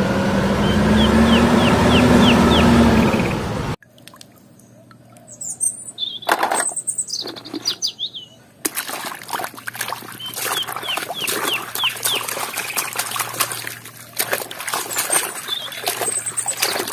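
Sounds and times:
small birds chirping: 0.5s - 3.5s, 4.4s - 8.7s, 9.8s - 16.9s
water splashing in a plastic tub: 3.8s - 5.3s, 8.6s - 16.9s
bird short repeated chirps: 4.8s - 8.4s, 10.2s - 12.9s, 15.0s - 16.9s.

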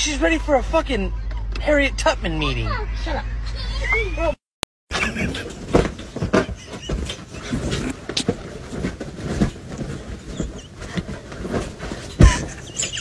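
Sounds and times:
paws rustling on bedding: 5.4s - 13.0s.

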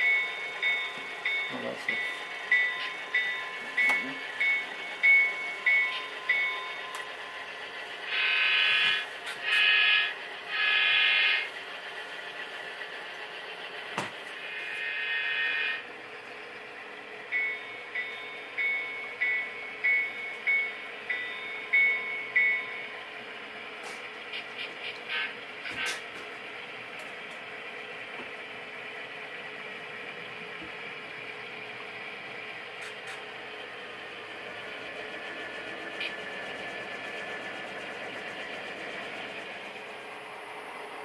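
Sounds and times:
model locomotive bell ringing: 0.0s - 11.5s, 17.2s - 23.2s.

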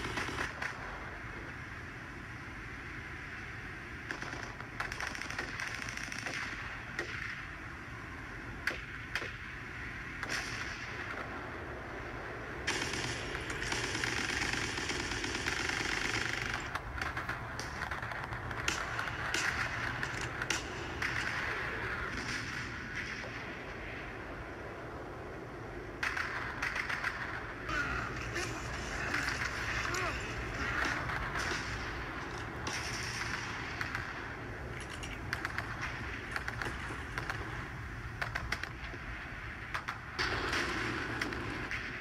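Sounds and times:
machine-gun fire: 0.0s - 1.0s, 4.0s - 7.5s, 10.2s - 11.4s, 12.6s - 24.0s, 26.0s - 39.0s, 39.6s - 42.0s
single gunshots: 26.0s - 37.4s.

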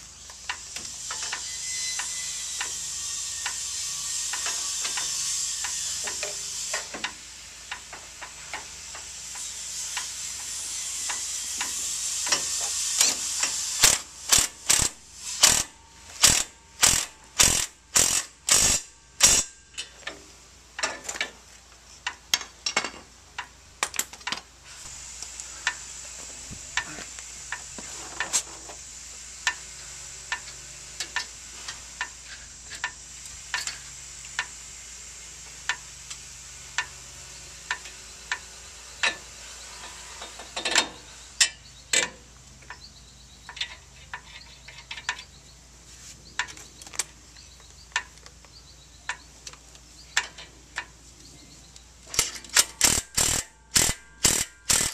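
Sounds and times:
hand ratchet clicking: 3.4s - 19.6s, 52.1s - 54.9s
impact wrench hammering: 11.6s - 19.6s, 52.2s - 54.9s.

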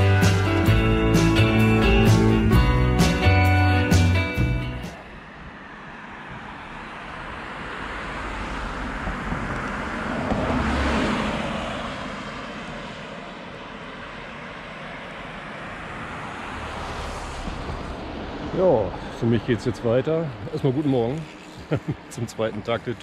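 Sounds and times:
background traffic: 0.0s - 23.0s
vehicle driving past: 5.0s - 23.0s.

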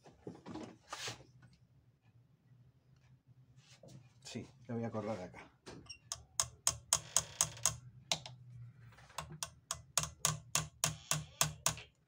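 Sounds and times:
rapid metallic clicking: 9.2s - 11.8s.

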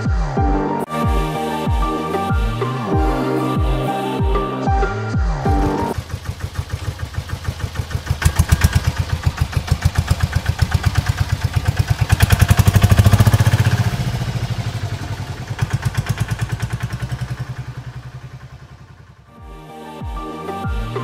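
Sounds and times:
small engine idling: 5.9s - 19.3s.

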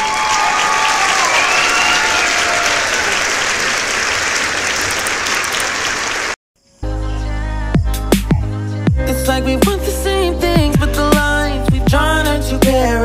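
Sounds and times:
crowd applause: 0.0s - 6.4s
falling cheer-like tones: 0.0s - 6.4s.

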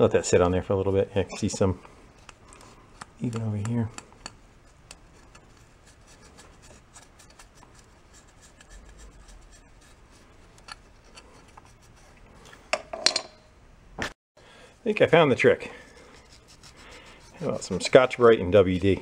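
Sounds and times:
scratching and rubbing switch contacts: 2.2s - 5.6s.

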